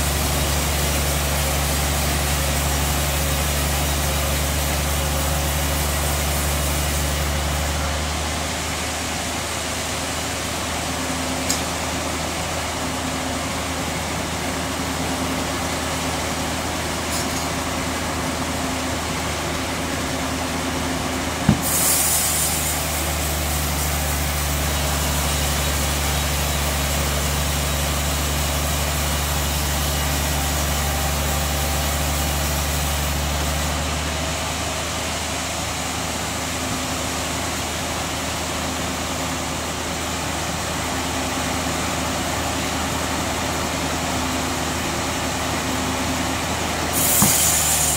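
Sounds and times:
sawmill machinery humming: 0:00.0 - 0:47.9
brief hiss: 0:21.6 - 0:25.2, 0:47.0 - 0:47.9.

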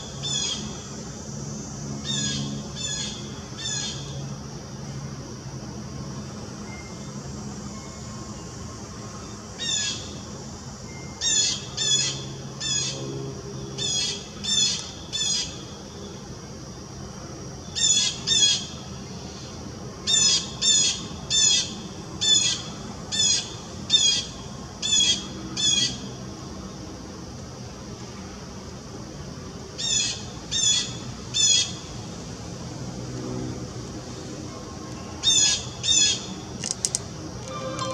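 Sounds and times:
low background hum: 0:00.0 - 0:37.9
bird calling: 0:37.4 - 0:37.9.

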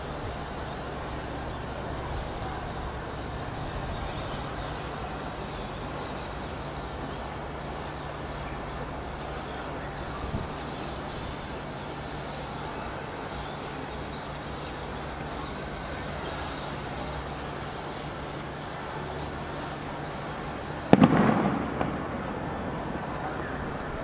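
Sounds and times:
steady background hiss: 0:00.0 - 0:24.0
sharp echoing bang: 0:20.9 - 0:23.5.

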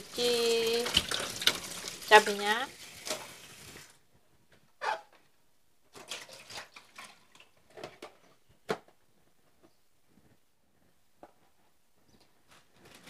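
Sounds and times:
water dripping: 0:00.0 - 0:03.9.

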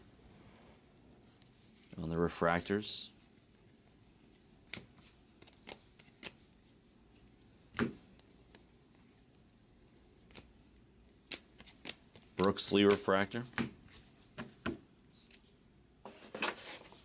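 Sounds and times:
cards flicking and clicking: 0:04.6 - 0:06.6, 0:10.2 - 0:15.4.

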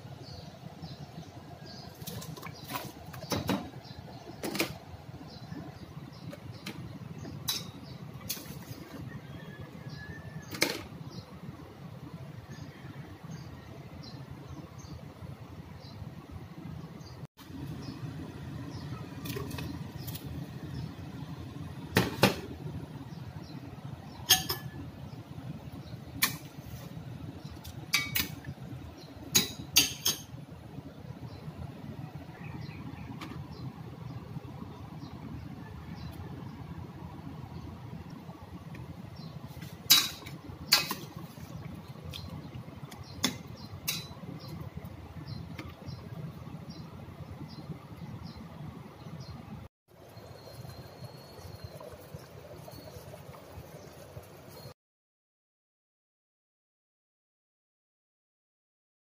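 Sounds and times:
clinks against metal pot: 0:24.2 - 0:24.8, 0:27.9 - 0:28.4, 0:29.3 - 0:30.4, 0:39.9 - 0:41.1, 0:43.2 - 0:44.2
metal ladle clinking on pot: 0:24.3 - 0:24.8, 0:29.3 - 0:30.3.

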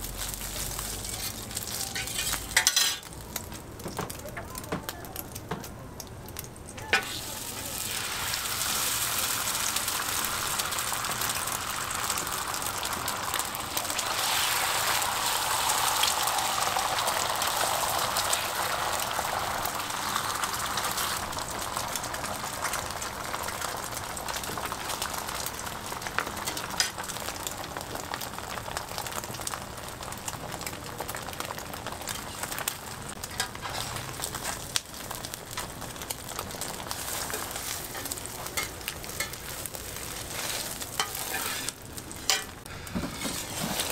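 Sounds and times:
egg sizzling on griddle: 0:00.0 - 0:43.9
metal spatula clicks and scrapes: 0:00.6 - 0:03.1.

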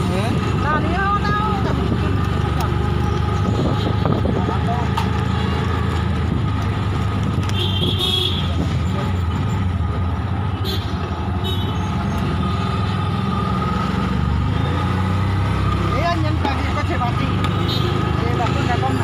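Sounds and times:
car engine running: 0:00.0 - 0:14.8
passing traffic: 0:00.0 - 0:19.0.

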